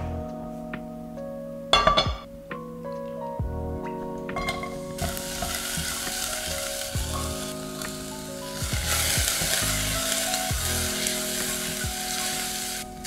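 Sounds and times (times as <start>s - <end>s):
onion sizzling in a pan: 4.4s - 13.0s.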